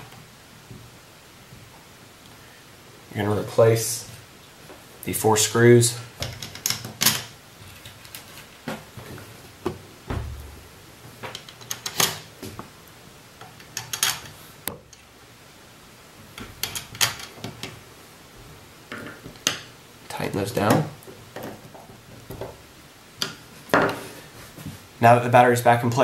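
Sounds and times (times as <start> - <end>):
dull thump on wooden desk: 9.7 - 10.6.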